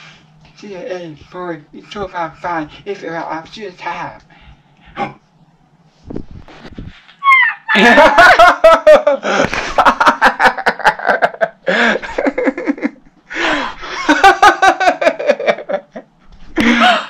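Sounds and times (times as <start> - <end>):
loud hearty laughter: 7.6 - 13.0, 13.8 - 17.0.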